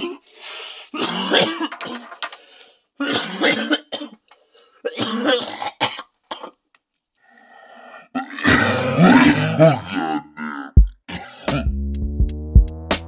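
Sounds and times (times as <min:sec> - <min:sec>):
man coughing: 0:00.9 - 0:02.1, 0:03.0 - 0:04.2, 0:04.8 - 0:06.6
music with a beat: 0:10.8 - 0:13.0.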